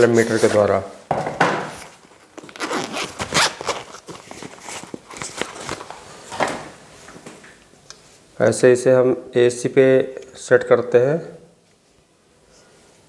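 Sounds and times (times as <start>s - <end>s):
rustling of a pouch: 1.8s - 6.4s
zipper of a soft case opening: 2.4s - 4.8s.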